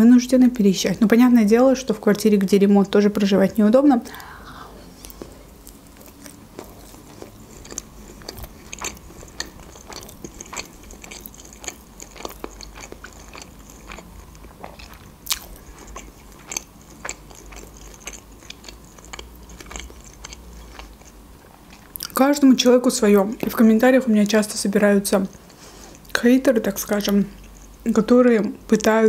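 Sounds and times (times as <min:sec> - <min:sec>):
person chewing and crunching: 0:05.0 - 0:22.2, 0:27.0 - 0:27.9.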